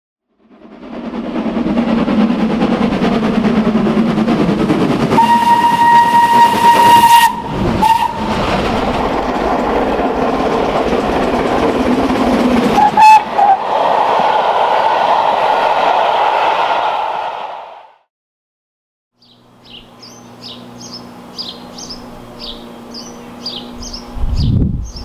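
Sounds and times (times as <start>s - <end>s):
steam locomotive working: 0.4s - 18.0s
locomotive whistle: 5.1s - 8.5s, 12.7s - 15.4s.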